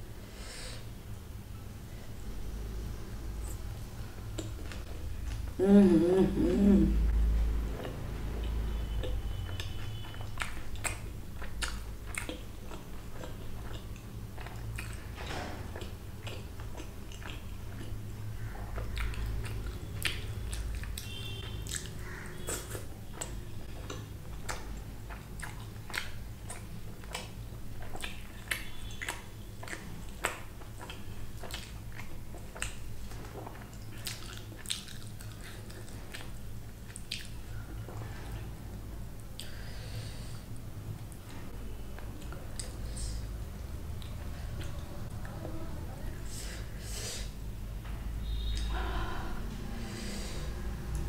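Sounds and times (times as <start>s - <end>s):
chewing and biting food: 7.6s - 38.2s.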